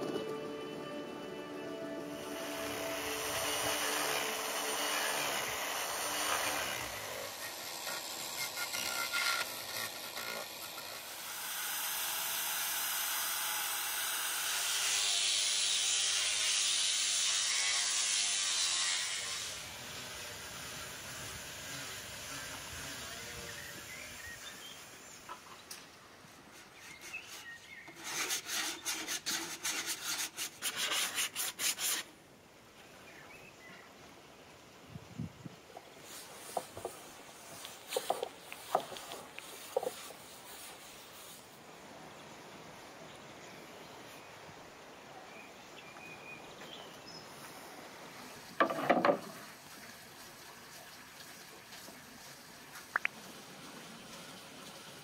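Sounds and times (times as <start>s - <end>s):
steel blade scraping wood: 2.5s - 12.4s, 14.6s - 19.7s, 26.6s - 32.1s, 36.2s - 40.8s.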